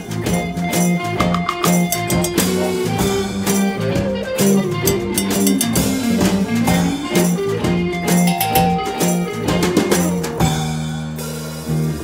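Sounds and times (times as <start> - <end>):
electric guitar: 0.0 - 12.0
bass line: 4.4 - 12.0
drum hits: 8.3 - 9.9.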